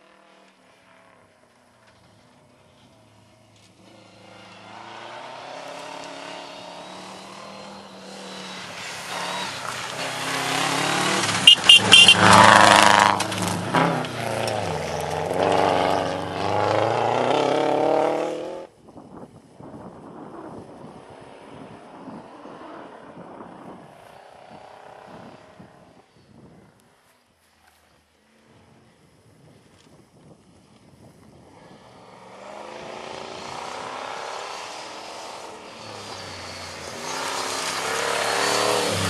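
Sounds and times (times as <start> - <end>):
rally car engine at full throttle: 0.0 - 18.7, 31.4 - 39.0.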